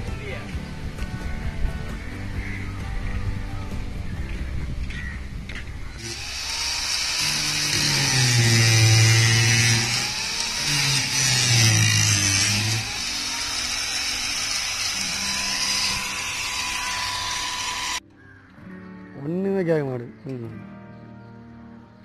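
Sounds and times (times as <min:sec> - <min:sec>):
power grinder grinding: 0:05.9 - 0:18.0.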